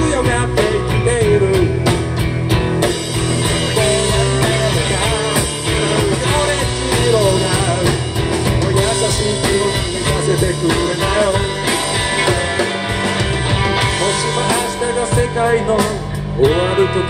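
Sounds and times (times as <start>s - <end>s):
bending lead guitar melody: 0.0s - 17.0s
live rock band: 0.0s - 17.0s.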